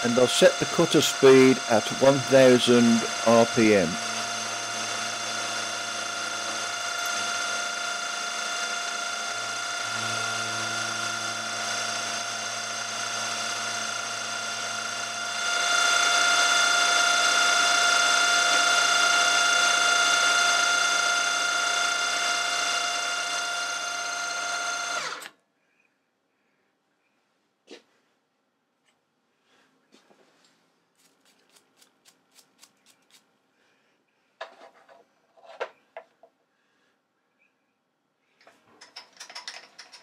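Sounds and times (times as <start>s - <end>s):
metal cutting noise: 0.0s - 25.3s
milling machine whine: 0.0s - 25.3s.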